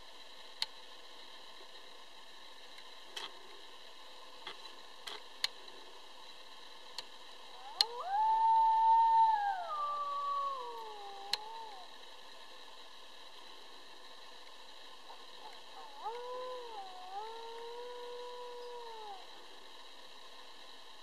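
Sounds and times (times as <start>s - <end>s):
coyote howling: 7.5s - 12.0s, 15.1s - 19.6s.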